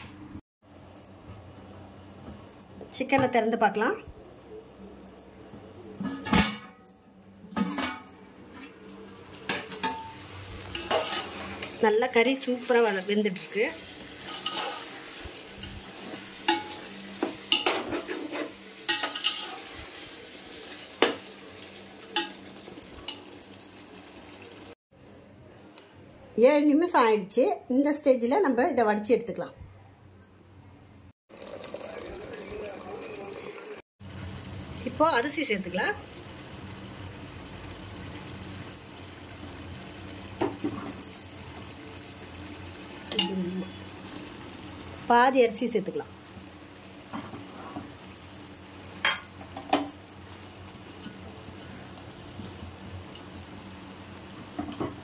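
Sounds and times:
gravy sizzling: 7.6s - 24.8s, 31.3s - 55.0s
metal ladle scraping a pot: 10.7s - 11.5s, 14.2s - 15.0s, 17.6s - 19.7s.

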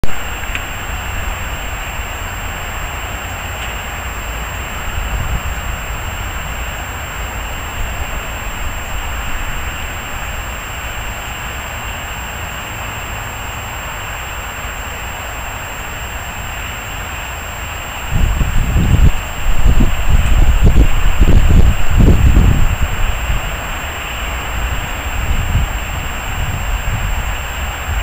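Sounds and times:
steady hiss: 0.0s - 28.0s.

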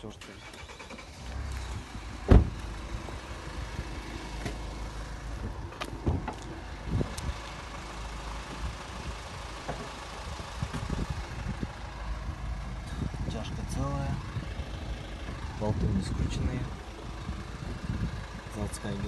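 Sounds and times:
steady low rumble: 1.2s - 19.0s
car door shutting: 2.1s - 3.2s, 5.7s - 6.5s.

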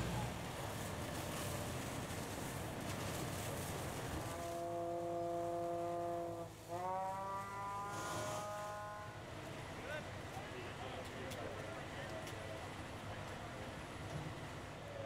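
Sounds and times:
fire engine rumbling: 0.0s - 15.0s.

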